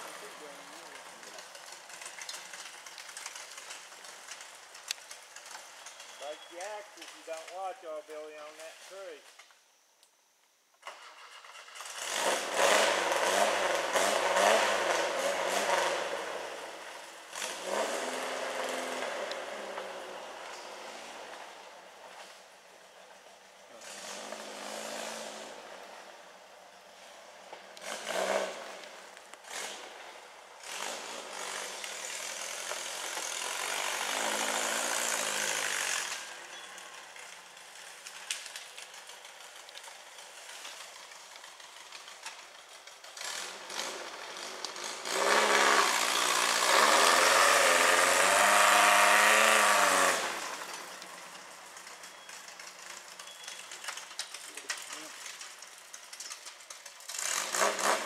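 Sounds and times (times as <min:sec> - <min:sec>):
engine revving: 0:11.1 - 0:21.5, 0:23.8 - 0:26.1, 0:27.8 - 0:38.2, 0:43.0 - 0:51.0, 0:56.4 - 0:58.0.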